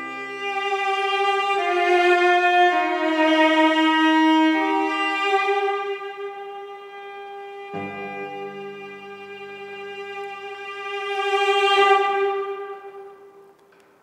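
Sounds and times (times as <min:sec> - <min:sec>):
bowed cello long held notes: 0:00.0 - 0:13.4.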